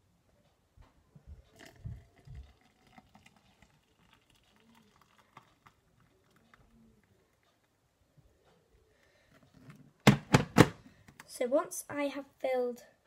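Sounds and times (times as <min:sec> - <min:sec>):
water trickling into mug: 0:01.5 - 0:07.4.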